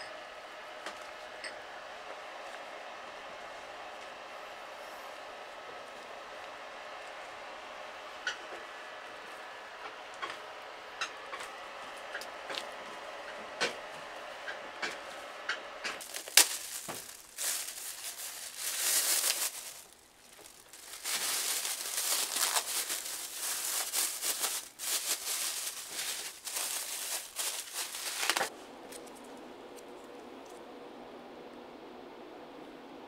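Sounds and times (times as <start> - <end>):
plastic bag crinkling: 16.0 - 29.2.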